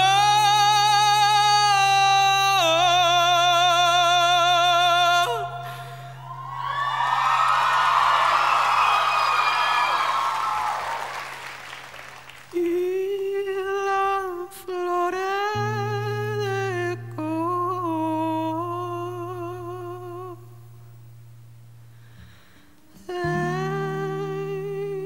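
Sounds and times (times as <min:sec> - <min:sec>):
crowd cheering: 0:06.2 - 0:12.6.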